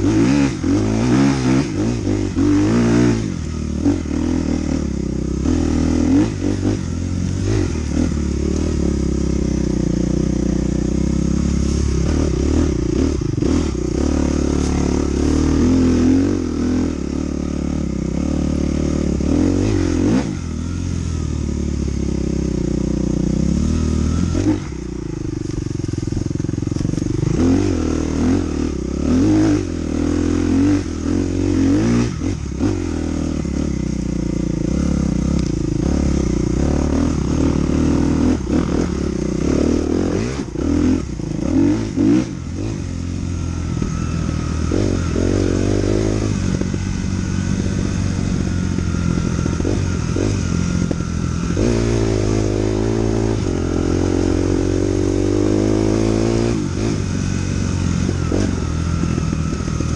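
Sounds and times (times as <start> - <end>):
dirt bike engine revving: 0.0 - 59.9.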